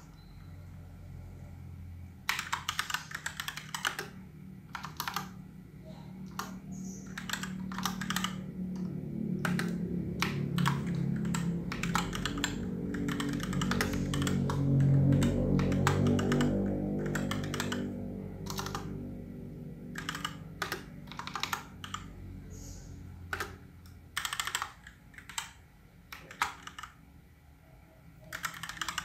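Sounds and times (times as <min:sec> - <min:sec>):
typing on computer keyboard: 0:02.2 - 0:05.4, 0:06.3 - 0:19.1, 0:19.9 - 0:22.1, 0:23.3 - 0:27.0, 0:28.2 - 0:29.0
low drone: 0:05.6 - 0:23.3.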